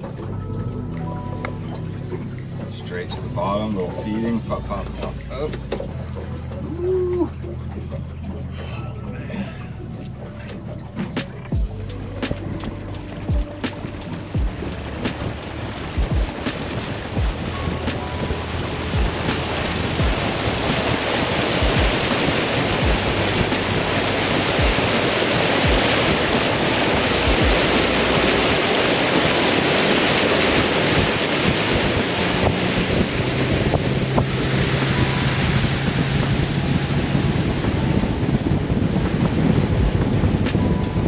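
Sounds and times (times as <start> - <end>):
water splashing off hull: 0.0 - 41.0
wind buffeting microphone: 11.1 - 41.0.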